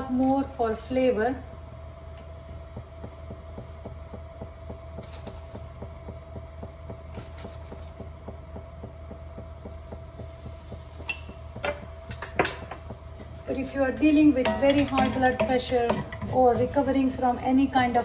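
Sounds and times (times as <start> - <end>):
low throbbing hum: 0.0 - 18.0.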